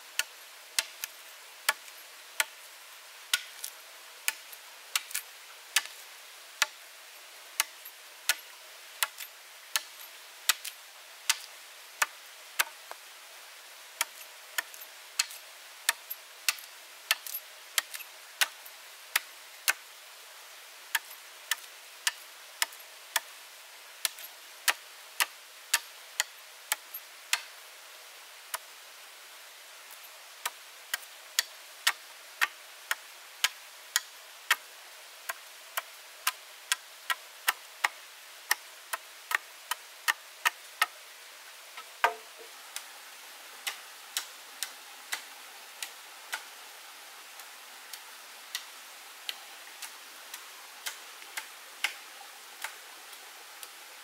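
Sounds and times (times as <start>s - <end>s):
faint steady hiss: 0.0s - 54.0s
sharp irregular knocks: 42.0s - 42.5s.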